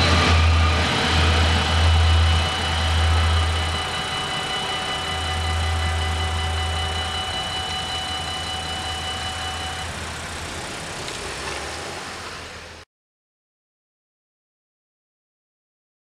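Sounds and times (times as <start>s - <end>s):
car engines pulling away: 0.0s - 12.8s
steady high whine: 0.0s - 12.8s.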